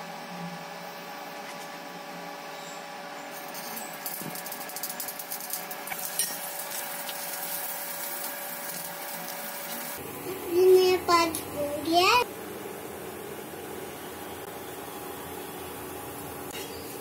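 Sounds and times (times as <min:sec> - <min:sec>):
induction cooktop hum: 0:00.0 - 0:17.0
hot oil sizzling and crackling: 0:03.3 - 0:10.1.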